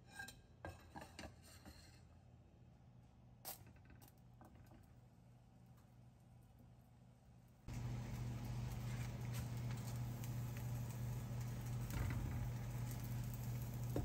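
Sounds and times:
steady low hum: 5.0 - 14.0
bread sizzling in frying pan: 7.7 - 14.0.

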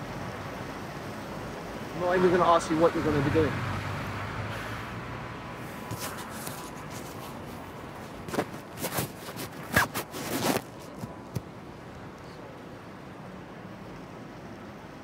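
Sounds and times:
rustling and clicking: 5.8 - 11.5.

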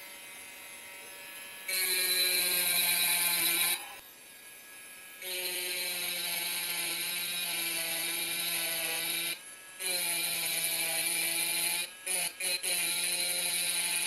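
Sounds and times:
rotary tool grinding glass: 0.0 - 14.0.

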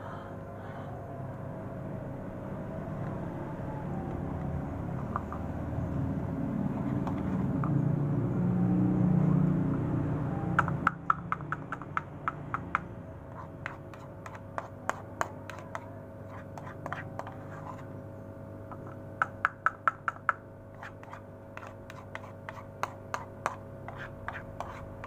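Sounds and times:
metal spoon tapping plastic cup: 10.6 - 12.8.

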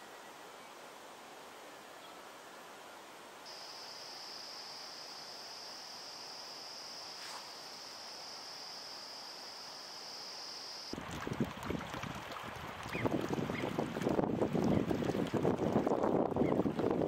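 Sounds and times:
insect trilling: 3.5 - 11.0
wind buffeting microphone: 11.0 - 17.0.

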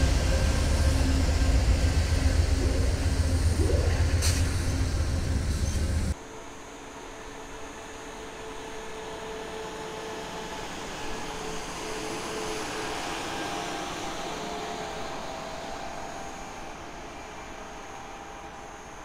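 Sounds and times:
machine rumbling on rails: 0.0 - 6.2
diesel engine drone with whine: 0.0 - 19.0.

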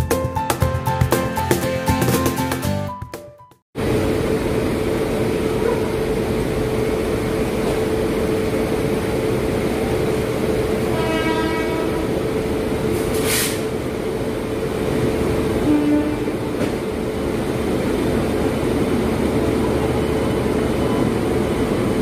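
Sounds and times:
electric locomotive humming: 3.8 - 22.0
train horn note: 10.8 - 12.2, 15.6 - 16.7.

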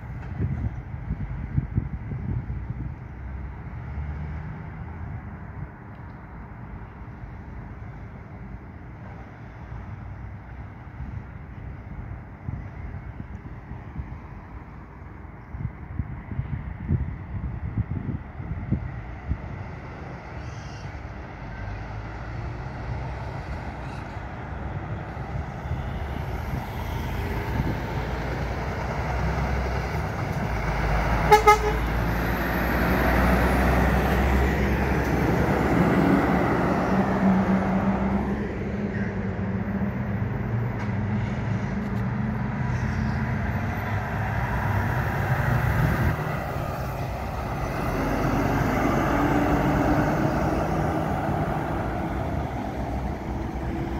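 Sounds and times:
heavy trucks driving past: 0.0 - 53.9
vehicle horn toots: 31.3 - 31.9.

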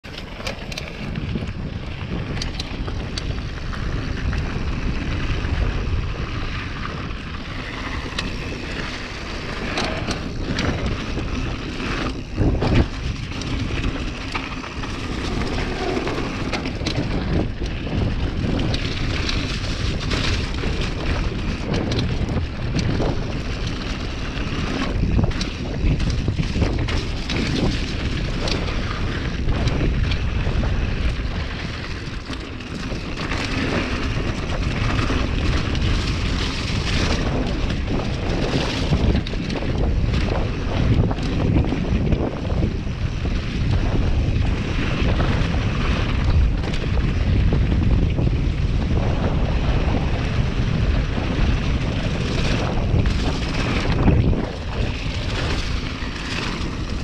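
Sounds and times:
bike rattling over bumps: 0.0 - 57.0
bike tyres on dirt: 0.0 - 57.0
wind on microphone: 0.0 - 57.0.

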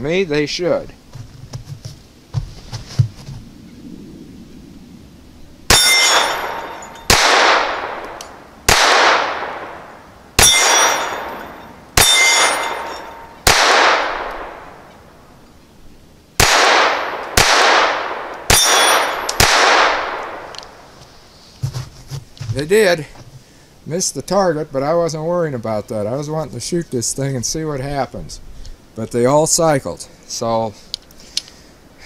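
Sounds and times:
pistol shots echoing: 5.7 - 14.8, 16.4 - 20.5.

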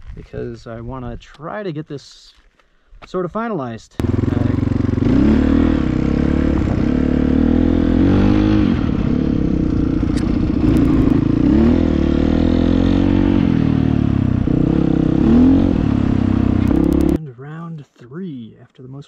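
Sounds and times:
motorcycle engine revving: 4.0 - 17.2.

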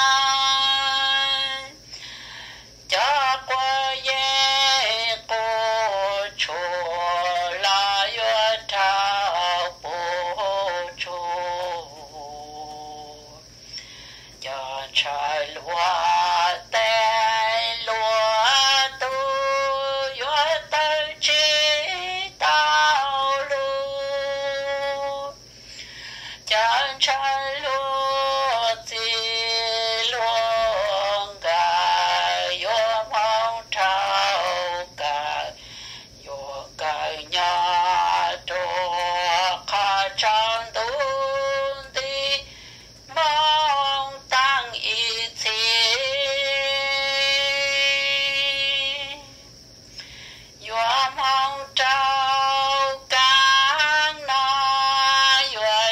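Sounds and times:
singer breathing: 1.8 - 2.9, 13.5 - 14.4, 25.5 - 26.5, 35.6 - 36.2, 42.4 - 43.0, 49.8 - 50.6
person singing long held notes: 2.8 - 55.9.

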